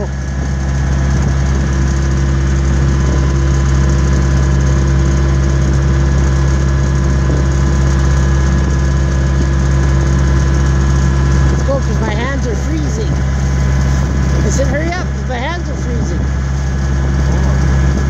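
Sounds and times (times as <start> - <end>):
skid steer engine running: 0.0 - 18.0.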